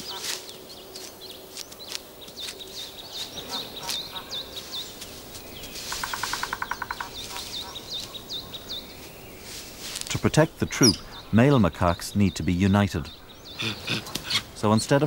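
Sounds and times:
small birds chirping: 0.0 - 15.0
bird rapid trill: 5.8 - 8.8.

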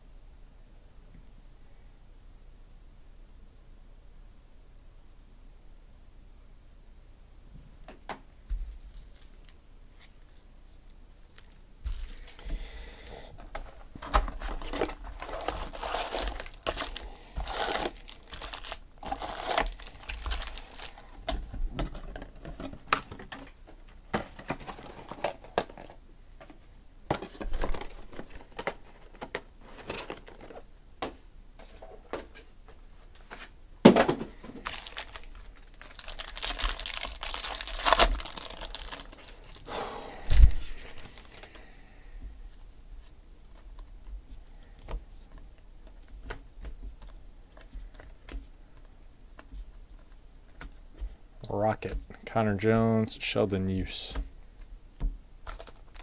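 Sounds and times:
foil packs crinkling and rustling: 8.6 - 10.3, 11.4 - 12.5, 13.4 - 26.0, 27.1 - 30.7, 34.4 - 41.7, 55.4 - 56.0
wrapper ripping open: 14.0 - 21.2, 34.6 - 39.7.

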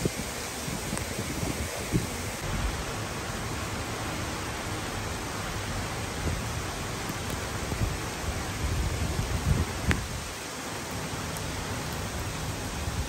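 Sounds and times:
heavy rain: 0.0 - 13.0.

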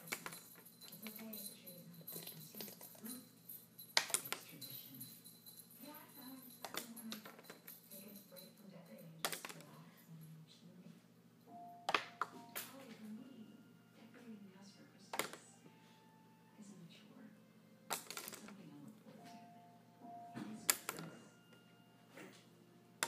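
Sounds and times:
paintbrush clattering against bottle: 0.0 - 5.5.

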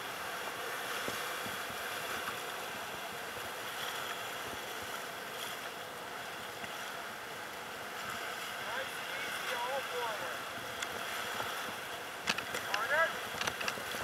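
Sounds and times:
whitewater rapids rushing: 0.0 - 14.0.

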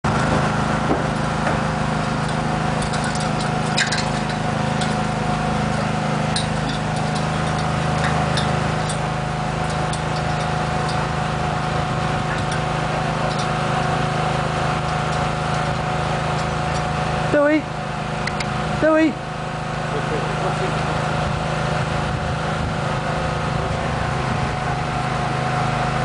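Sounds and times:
dog claws on metal ladder: 0.0 - 17.1
engine idling: 0.0 - 26.0.

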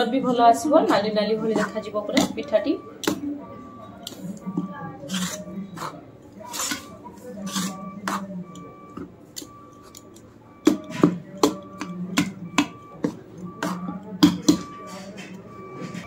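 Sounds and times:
spoon stirring batter in metal bowl: 5.1 - 10.1.

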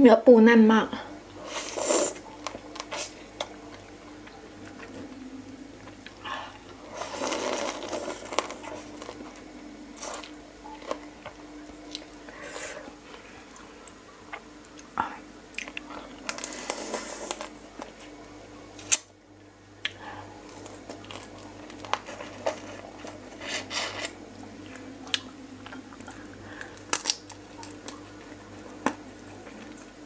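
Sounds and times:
faint steady hum: 0.0 - 30.0
wet squishing and chewing: 2.1 - 9.5, 10.1 - 18.1, 19.8 - 23.4, 24.0 - 30.0
crab shell cracking: 26.0 - 28.0.

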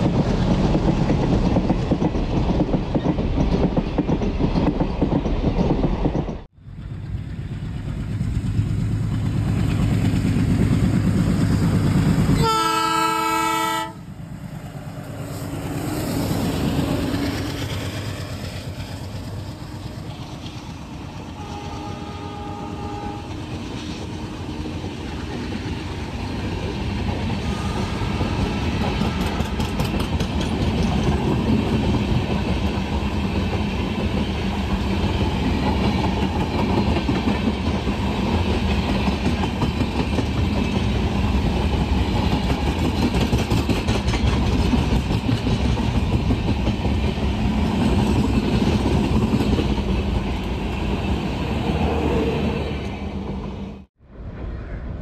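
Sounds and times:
train wheels clattering over rail joints: 0.0 - 12.4, 28.1 - 50.9
passing train rumble and rush: 0.0 - 55.0
train horn: 12.4 - 14.1, 21.3 - 23.5, 27.4 - 29.7.

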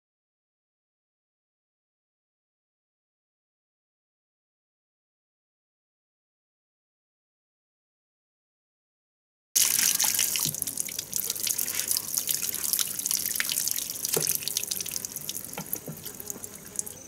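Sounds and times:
tap water splashing into sink: 9.6 - 17.0.

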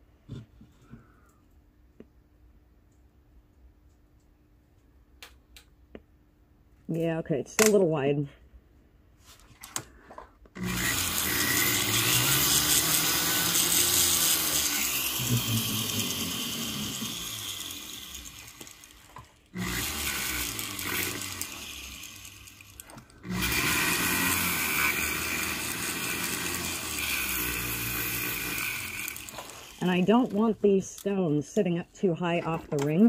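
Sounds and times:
rotary tool grinding stone: 10.6 - 30.8.

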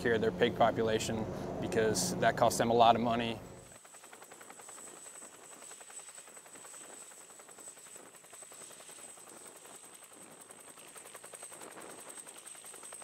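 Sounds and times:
helicopter rotor and whine: 0.0 - 13.0.

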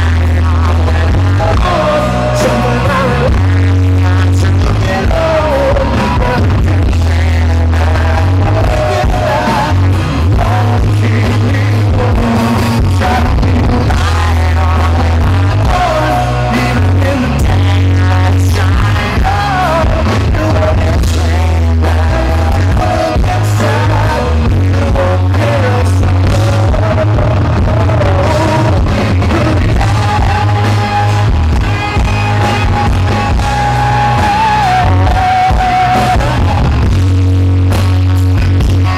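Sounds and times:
lead vocal singing: 0.0 - 37.1
booming bass: 0.0 - 38.9
live rock band playing: 0.0 - 38.9.

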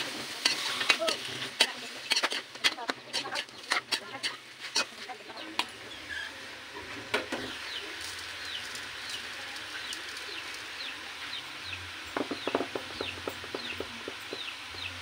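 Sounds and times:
chicks peeping: 12.2 - 15.0.

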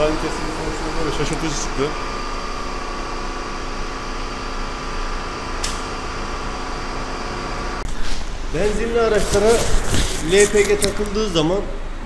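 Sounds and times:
thin steady whine: 0.0 - 9.4
mechanical hum: 0.0 - 12.0.

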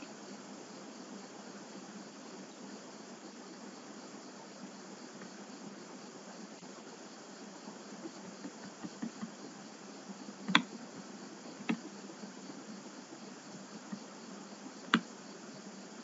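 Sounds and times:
steady background hiss: 0.0 - 16.0
computer mouse clicking: 10.5 - 10.7, 14.9 - 15.1.

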